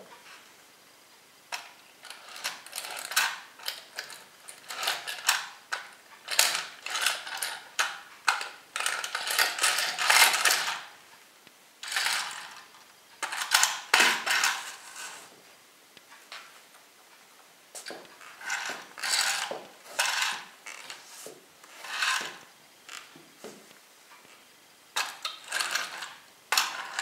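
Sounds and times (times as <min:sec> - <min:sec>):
plastic toy creaking and cracking: 0:01.6 - 0:10.9, 0:11.8 - 0:15.2, 0:18.2 - 0:21.0, 0:21.7 - 0:23.2, 0:25.0 - 0:27.0.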